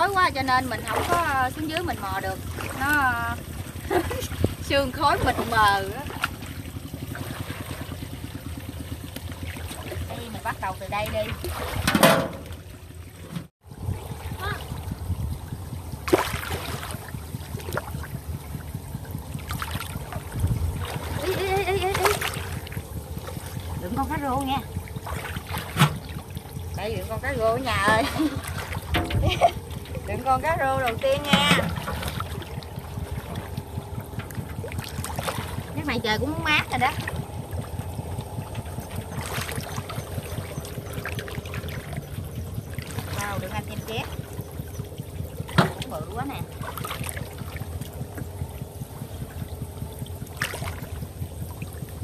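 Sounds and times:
muddy water sloshing and splashing: 0.0 - 52.0
steady low rumble: 0.0 - 52.0
large splash: 16.0 - 18.0.

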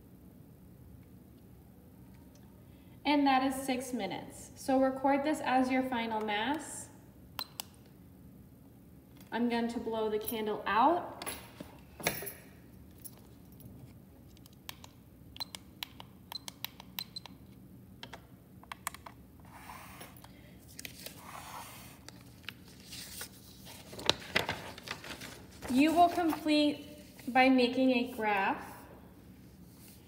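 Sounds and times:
paper being handled: 20.7 - 27.4.

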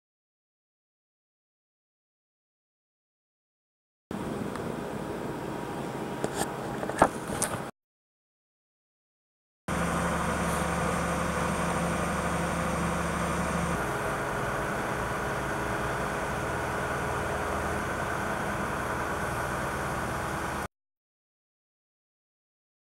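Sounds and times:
crane engine running: 4.1 - 7.7, 9.7 - 20.7
outdoor noise: 4.1 - 7.7, 9.7 - 20.7.

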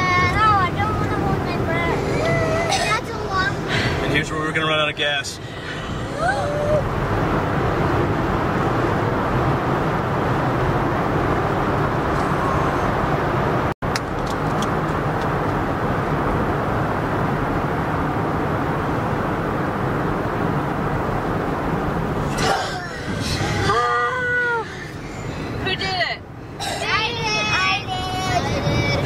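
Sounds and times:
car road and engine noise: 0.0 - 29.0.

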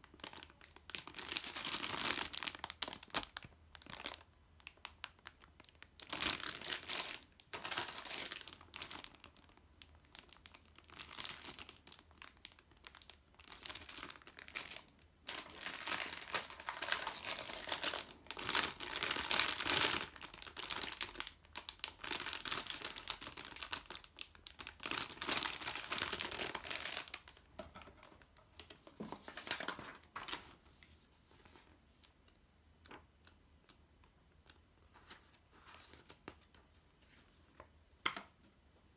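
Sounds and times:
plastic bags crinkling: 0.1 - 30.5
paper booklet rustling: 25.4 - 31.8, 34.9 - 37.7.

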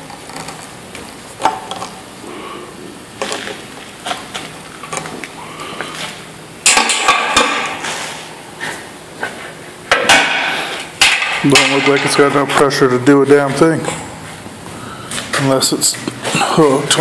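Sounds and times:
metallic clanks and knocks: 11.0 - 12.7.

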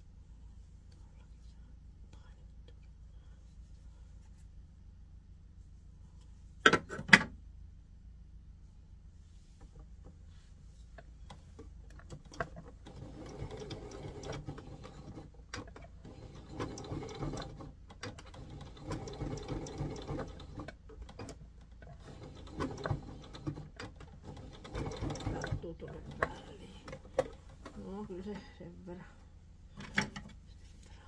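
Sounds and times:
electric sewing machine stitching: 12.4 - 26.3.

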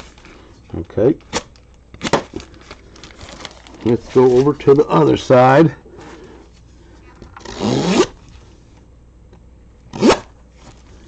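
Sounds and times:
plastic wrap rubbing rasp: 7.4 - 8.3.

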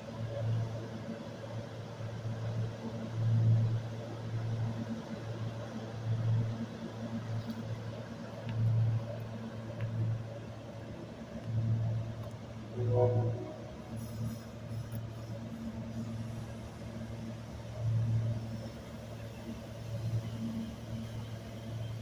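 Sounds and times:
electric train rumbling: 10.0 - 22.0.

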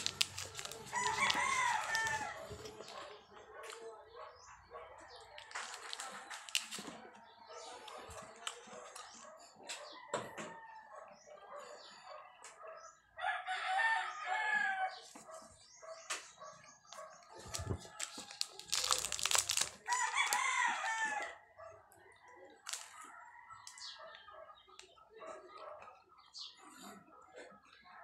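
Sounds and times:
rooster crowing: 0.7 - 2.5, 13.2 - 14.9, 19.9 - 21.4.

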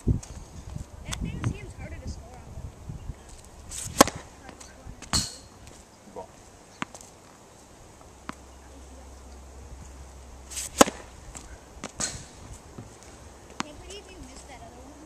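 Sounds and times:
racket striking tennis ball: 3.7 - 7.1, 10.5 - 14.5
ball bouncing on hard court: 3.9 - 5.8, 6.7 - 7.1, 8.2 - 8.5, 10.6 - 14.5.

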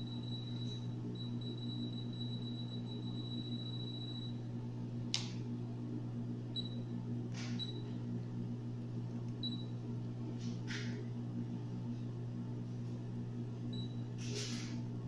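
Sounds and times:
high-pitched alarm tone: 0.0 - 4.4
low hum: 0.0 - 14.1.

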